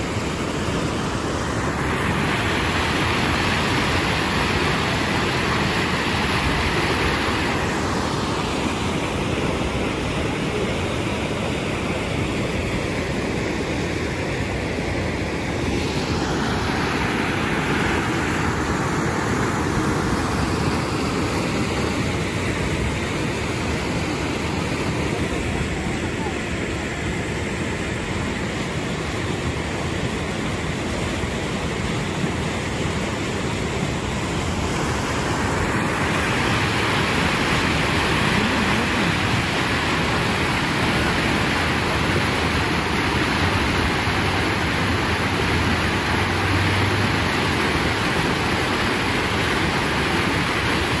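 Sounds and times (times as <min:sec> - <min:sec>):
water rushing over weir: 0:00.0 - 0:51.0.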